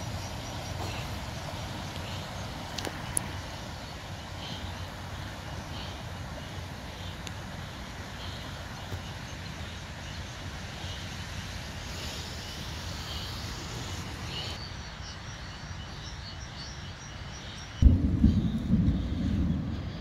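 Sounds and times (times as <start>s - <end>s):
wind on microphone: 17.8s - 20.0s.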